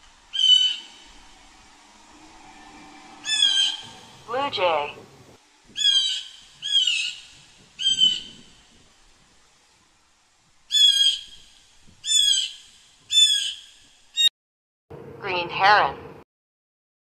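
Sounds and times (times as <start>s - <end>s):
blue jay harsh calls: 0.3s - 1.1s, 3.2s - 4.0s, 5.7s - 8.8s, 10.7s - 14.3s.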